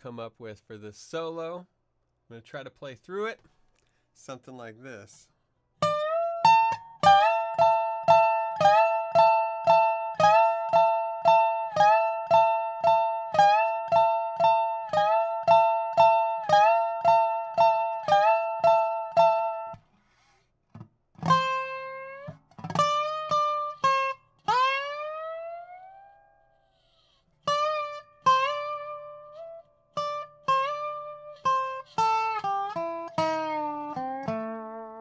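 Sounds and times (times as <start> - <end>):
slide guitar solo: 5.8 - 19.8, 21.2 - 35.0.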